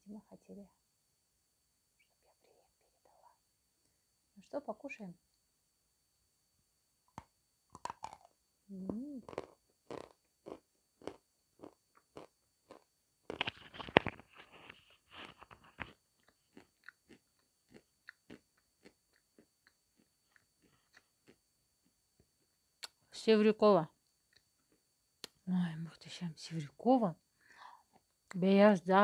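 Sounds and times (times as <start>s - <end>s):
chalk being bitten and chewed: 7.8s - 8.3s, 9.2s - 21.4s.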